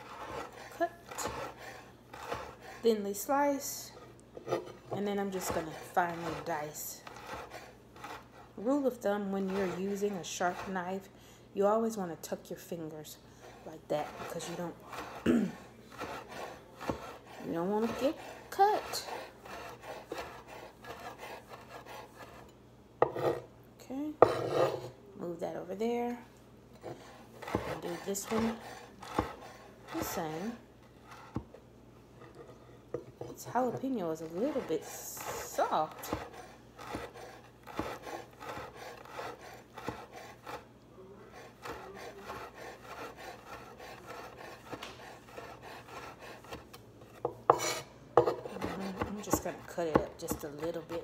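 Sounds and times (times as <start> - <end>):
knife chopping on cutting board: 0.0 - 2.8, 15.9 - 22.4, 23.0 - 23.4, 24.2 - 24.9, 26.8 - 30.4, 32.9 - 40.6, 41.6 - 51.0.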